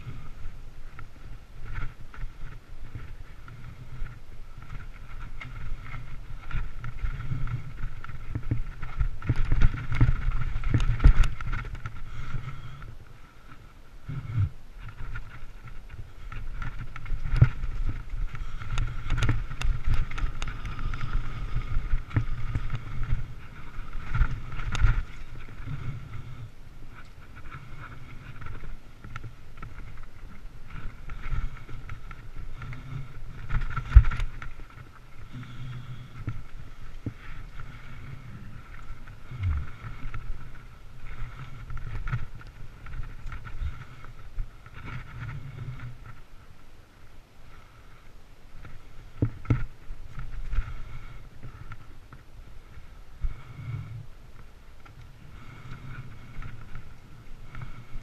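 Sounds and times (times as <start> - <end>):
mountain bike rattling: 0.0 - 46.6
steady high hum: 0.0 - 58.0
wind rumble on microphone: 0.0 - 58.0
bike hard jolt: 1.0 - 46.2.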